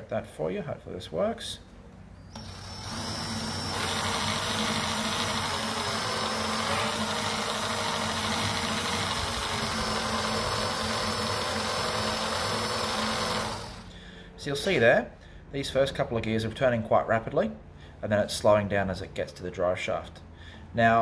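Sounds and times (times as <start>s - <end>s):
drill and gears whirring: 2.3s - 13.9s.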